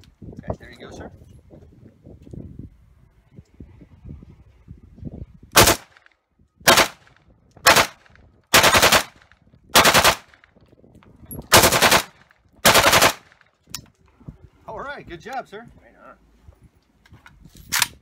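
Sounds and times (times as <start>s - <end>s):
rifle firing bursts: 5.6s - 6.0s, 6.7s - 7.1s, 7.7s - 9.2s, 9.8s - 10.4s, 11.5s - 13.4s.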